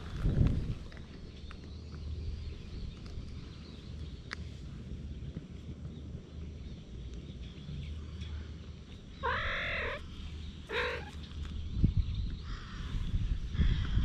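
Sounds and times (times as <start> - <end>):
cat meowing: 9.2 - 10.0, 10.7 - 11.2.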